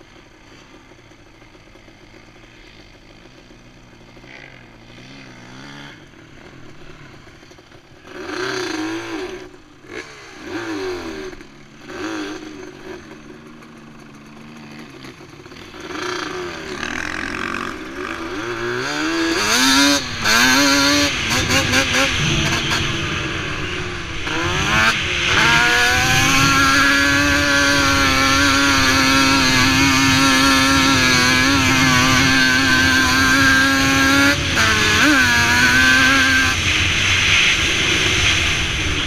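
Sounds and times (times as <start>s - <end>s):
dirt bike engines idling: 0.0s - 39.0s
dirt bike engines revving: 0.0s - 39.0s.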